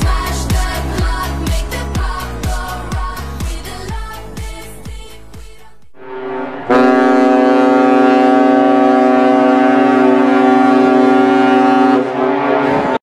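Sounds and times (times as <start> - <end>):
ship's horn blast: 6.0 - 13.0.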